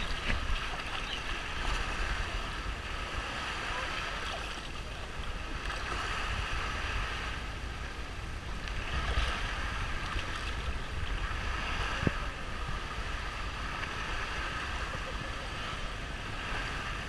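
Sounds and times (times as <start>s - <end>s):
surf lapping around boat: 0.0s - 17.0s
wind buffeting microphone: 0.0s - 17.0s.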